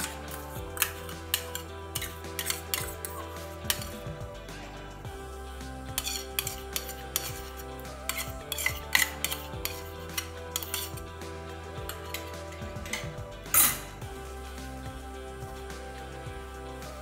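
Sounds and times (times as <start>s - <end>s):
spoon scraping steel bowl: 0.0s - 4.1s, 5.9s - 11.1s, 11.8s - 14.0s.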